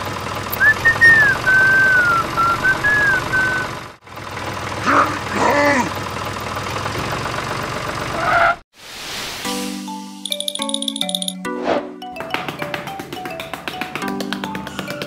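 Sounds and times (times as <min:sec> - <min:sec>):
tractor engine chugging: 0:00.0 - 0:08.5
whistled gliding tone: 0:00.6 - 0:03.7.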